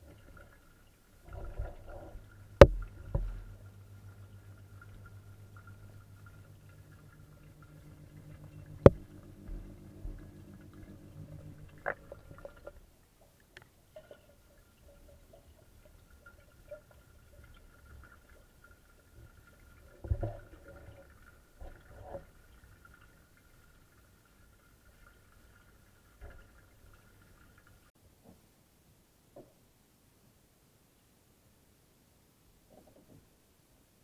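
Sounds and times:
fish tank low hum: 0.0 - 13.2.

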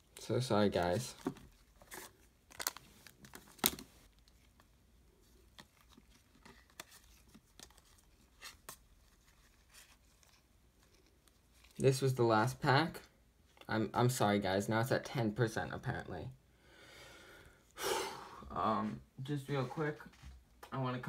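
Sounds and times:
card wrappers rustling and crinkling: 0.0 - 12.6
sharp wrapper crackles: 2.5 - 4.4.

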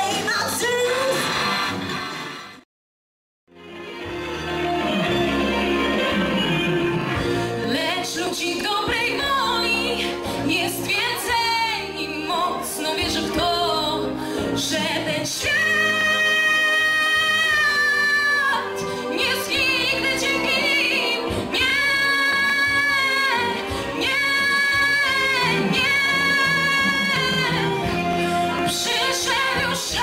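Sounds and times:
instrumental accompaniment: 3.5 - 30.0
woman singing into microphone: 7.6 - 30.0.

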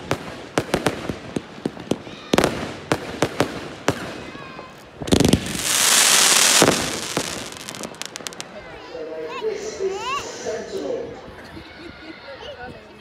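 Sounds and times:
fireworks bangs and crackles: 0.0 - 8.8
loud hiss: 5.1 - 8.5.

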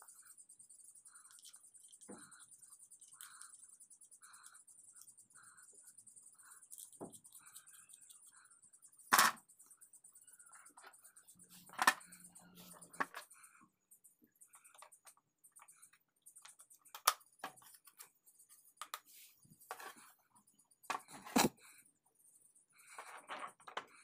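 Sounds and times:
metal and plastic pieces clicking: 9.0 - 9.5, 11.7 - 12.2, 16.4 - 18.0.

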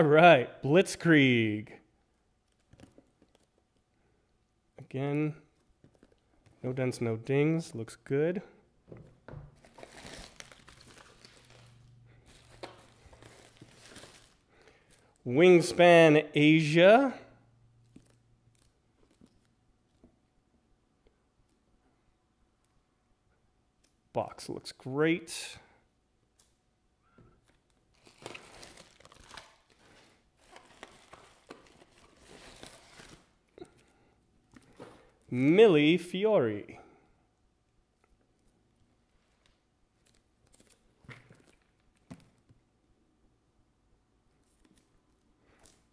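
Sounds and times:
bubble wrap and cardboard crinkling: 9.5 - 15.2, 17.8 - 20.0, 27.4 - 35.3, 38.0 - 42.5.

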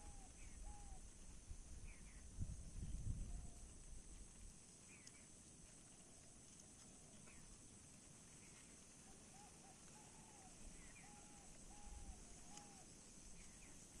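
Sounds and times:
faint short arching calls: 0.0 - 1.1, 8.4 - 13.9
steady high hiss: 0.0 - 14.0.

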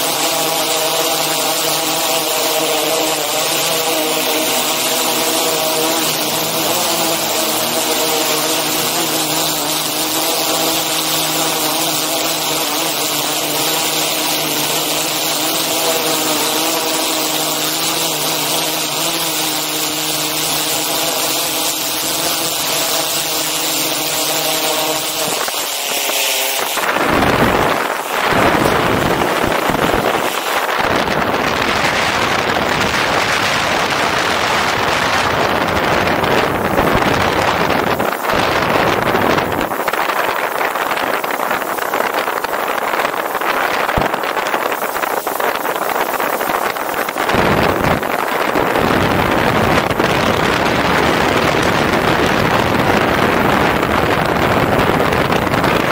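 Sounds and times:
drone rotors humming: 0.0 - 55.9
wind rushing over microphone: 0.0 - 55.9.

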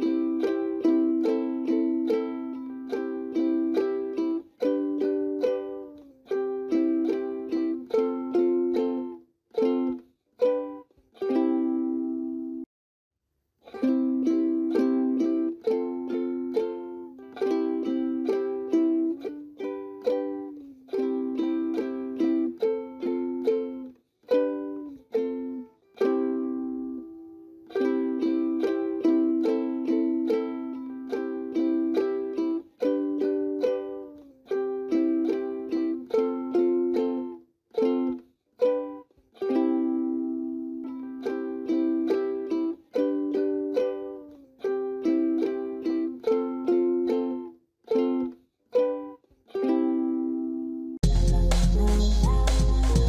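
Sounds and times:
sharply struck chords music: 51.0 - 53.0.

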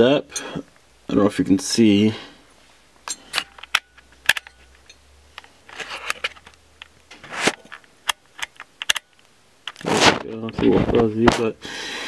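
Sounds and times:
camera handling clicks and knocks: 3.4 - 9.8
rustling swishes: 9.8 - 11.0.

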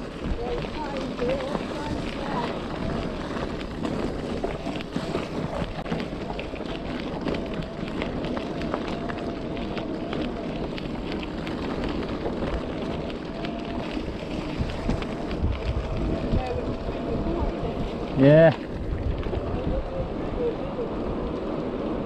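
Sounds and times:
tyres crunching on gravel track: 0.0 - 22.0
wind on microphone: 0.0 - 22.0
electric motor whine: 0.1 - 22.0.

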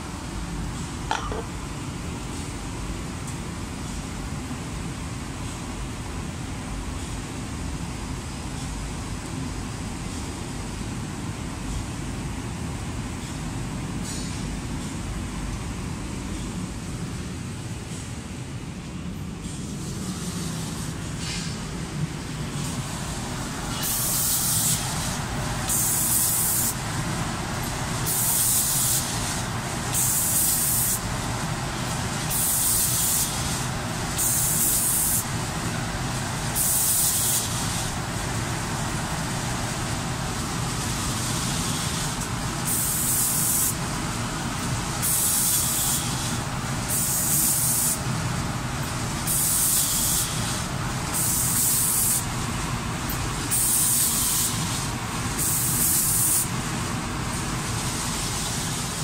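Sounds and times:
spray guns hissing: 22.9 - 26.9, 28.0 - 31.0, 32.3 - 35.3, 36.6 - 37.9, 41.0 - 43.8, 45.0 - 48.0, 49.3 - 52.3, 53.5 - 56.6.

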